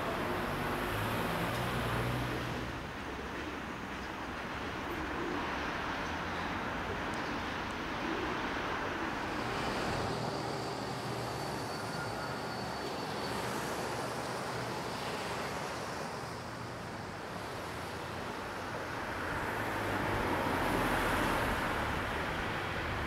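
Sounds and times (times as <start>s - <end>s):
city street traffic: 0.0s - 23.0s.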